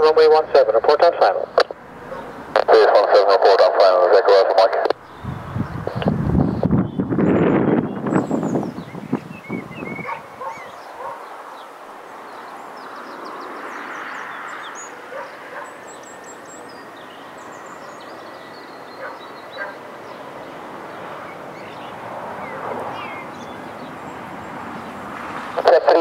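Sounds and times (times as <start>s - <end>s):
small birds chirping: 4.9s - 26.0s.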